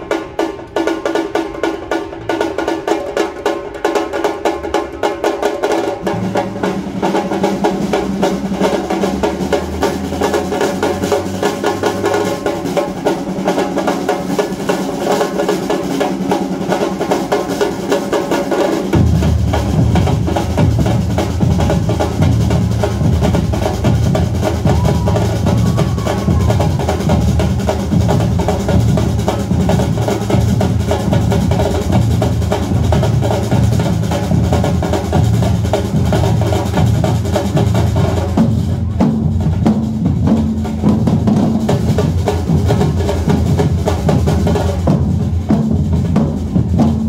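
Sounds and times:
fast samba drumming: 0:00.0 - 0:47.0
deep bass drums: 0:18.9 - 0:47.0.

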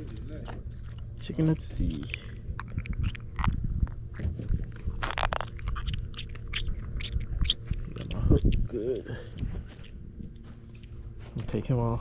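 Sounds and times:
crunching clicks: 0:00.0 - 0:08.7.

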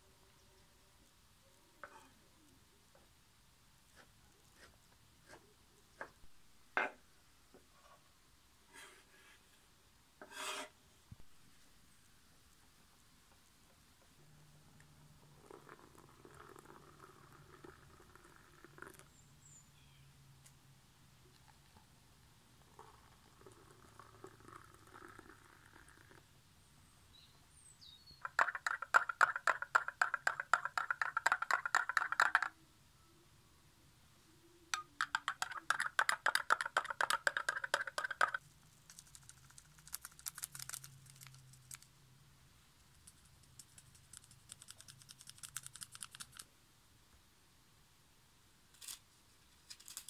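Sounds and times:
water pouring: 0:15.3 - 0:19.0.

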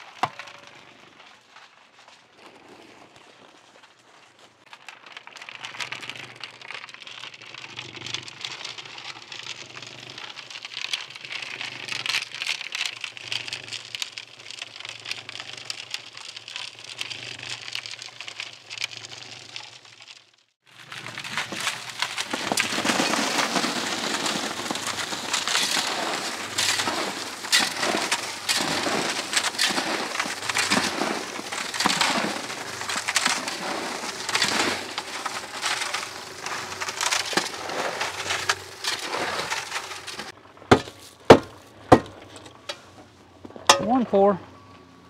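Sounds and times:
concrete scraping out of mixer drum: 0:21.0 - 0:42.9.

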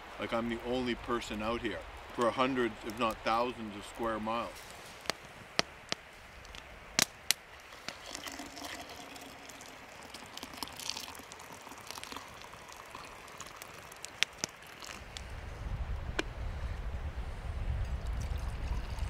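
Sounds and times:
hot water pouring into mug: 0:07.9 - 0:15.1, 0:18.0 - 0:19.0.

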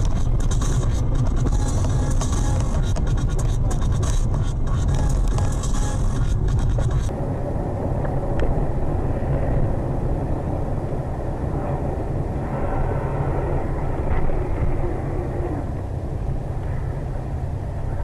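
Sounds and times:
harsh crackling sound: 0:00.0 - 0:17.1
car road and engine rumble: 0:00.0 - 0:18.0.

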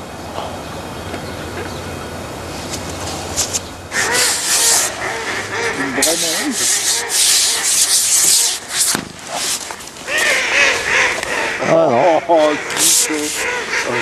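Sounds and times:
birds calling: 0:00.0 - 0:14.0
rubbing scraping noise: 0:02.5 - 0:11.6, 0:12.2 - 0:14.0.

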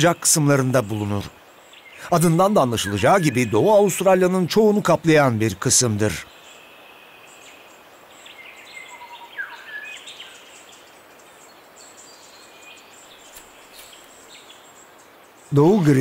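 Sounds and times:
birds chirping: 0:00.0 - 0:16.0
faint steady hiss: 0:00.0 - 0:16.0
high insect-like buzz: 0:12.9 - 0:15.4.

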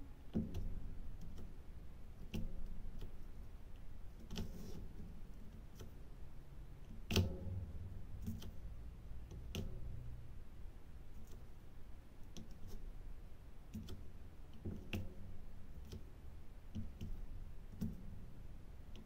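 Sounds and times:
low steady hum: 0:00.0 - 0:19.0
small plastic clicks: 0:13.7 - 0:15.2.

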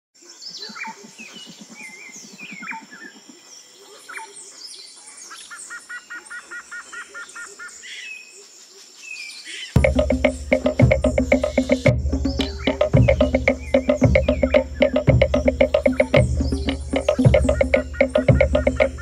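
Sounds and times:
birds chirping and calling: 0:09.1 - 0:19.0
rapid low pulsing call: 0:09.8 - 0:19.0.

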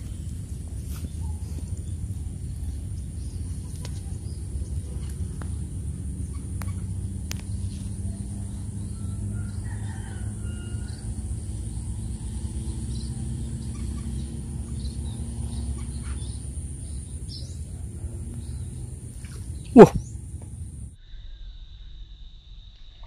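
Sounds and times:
small birds chirping: 0:00.0 - 0:20.9
steady low rumble: 0:00.0 - 0:21.0
distant rooster crowing: 0:08.0 - 0:13.1.

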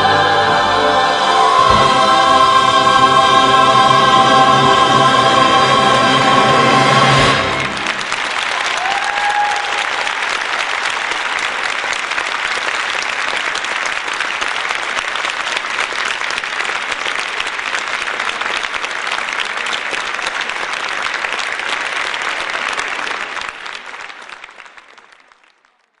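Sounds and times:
audience applauding: 0:01.5 - 0:26.0
person whooping: 0:08.6 - 0:10.1.

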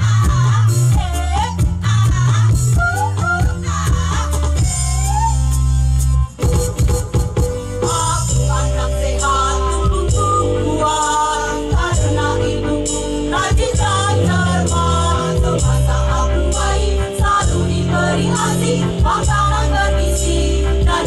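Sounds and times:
musical accompaniment: 0:00.0 - 0:21.0
women's choir singing: 0:07.8 - 0:21.0.

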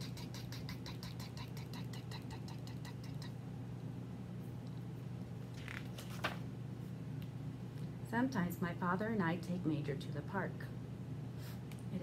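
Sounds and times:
woman imitating a jackhammer: 0:00.0 - 0:03.3
steady low hum: 0:00.0 - 0:12.0
book page turning: 0:05.5 - 0:06.4.

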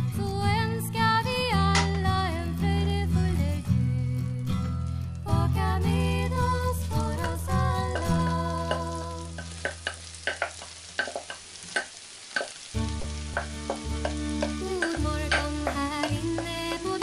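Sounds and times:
background music: 0:00.0 - 0:10.8, 0:12.6 - 0:17.0
butter sizzling and popping: 0:04.6 - 0:17.0
mushrooms poured into a pan: 0:06.6 - 0:17.0.

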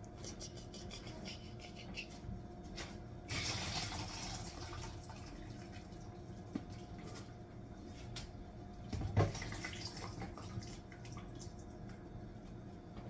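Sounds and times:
water pouring into a sink: 0:03.3 - 0:06.2, 0:09.2 - 0:11.7.

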